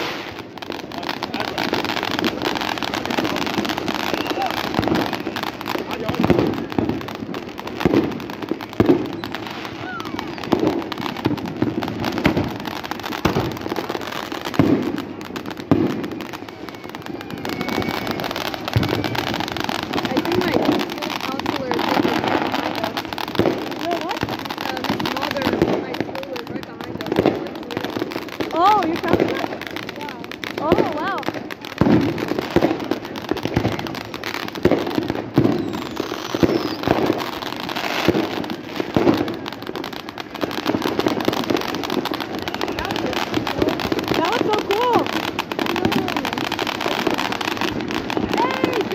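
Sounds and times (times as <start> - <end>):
fireworks crackle: 0.0 - 48.9
fireworks loud bangs: 0.0 - 48.9
firework falling whistle: 3.2 - 6.8, 8.8 - 11.2, 15.7 - 22.7, 34.6 - 39.1.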